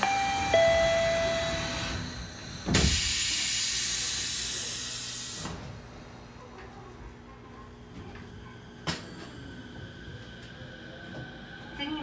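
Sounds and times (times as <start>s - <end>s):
door warning chime: 0.0s - 2.9s.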